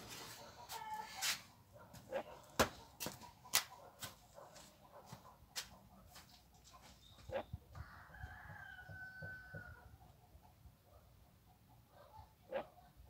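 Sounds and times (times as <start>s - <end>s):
rooster crowing: 0.7s - 1.4s, 7.8s - 9.9s.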